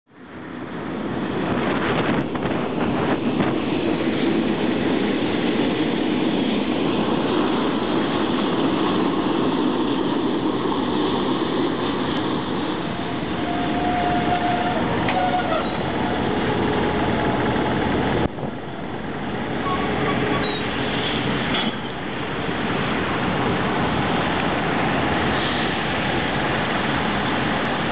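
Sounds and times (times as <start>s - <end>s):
diesel locomotives running past: 0.1s - 27.9s
thin squeal: 13.6s - 15.9s, 19.6s - 20.7s.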